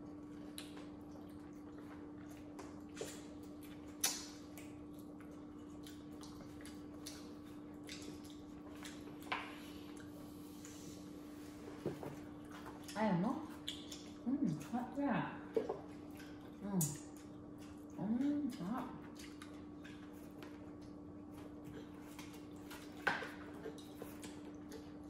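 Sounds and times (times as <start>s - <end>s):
chewing with wet smacks: 0.0s - 11.2s, 12.0s - 25.0s
steady low hum: 0.0s - 25.0s.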